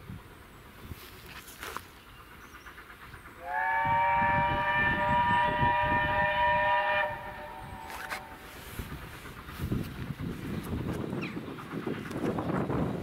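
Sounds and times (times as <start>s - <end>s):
steam locomotive whistle: 3.4s - 8.5s.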